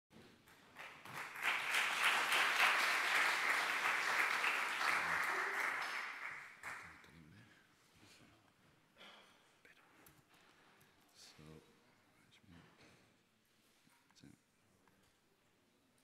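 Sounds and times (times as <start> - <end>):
audience applauding: 0.5 - 7.1.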